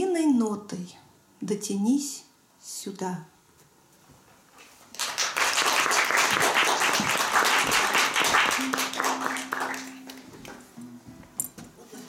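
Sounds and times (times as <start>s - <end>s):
audience applauding: 4.9s - 10.6s.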